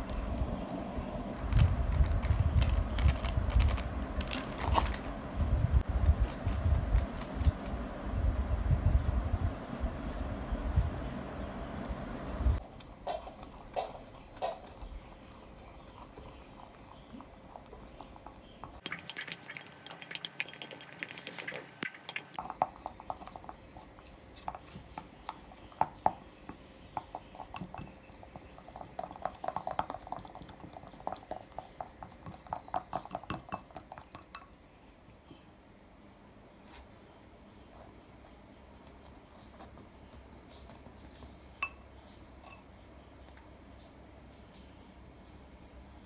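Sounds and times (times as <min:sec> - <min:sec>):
dishes and cutlery clinking: 0:18.8 - 0:22.7, 0:41.6 - 0:42.7.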